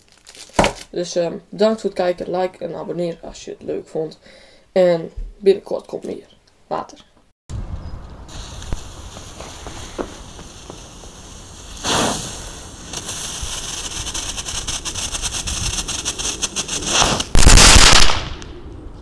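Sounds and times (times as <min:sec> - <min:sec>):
firework flare: 0:07.5 - 0:19.0
fountain firework crackling: 0:08.2 - 0:18.4.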